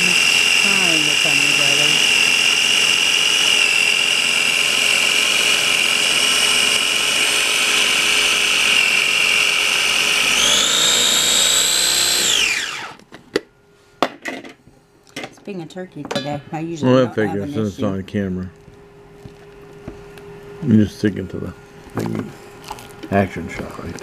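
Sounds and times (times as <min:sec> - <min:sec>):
food processor motor whining: 0:00.0 - 0:13.1.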